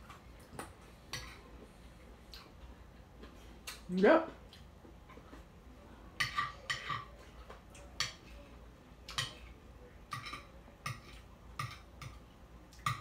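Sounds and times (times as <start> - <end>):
cutlery clicking on a plate: 10.1 - 12.2.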